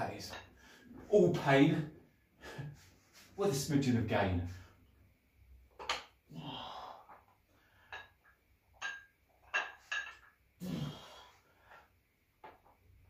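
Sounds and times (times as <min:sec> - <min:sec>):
dumbbell plates clinking: 0:07.0 - 0:10.4.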